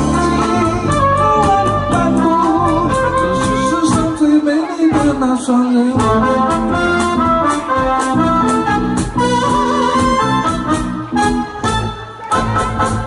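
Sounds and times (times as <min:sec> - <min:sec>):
man singing into microphone: 0:00.0 - 0:06.9
live band dance music: 0:00.0 - 0:13.0.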